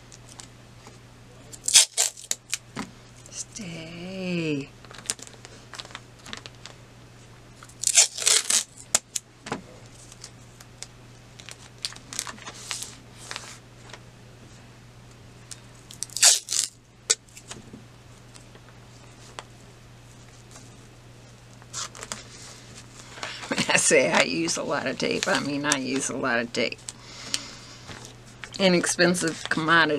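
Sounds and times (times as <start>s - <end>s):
faint steady hum: 0.0s - 29.9s
tape ripping: 1.5s - 2.6s, 7.6s - 9.2s, 15.9s - 17.6s.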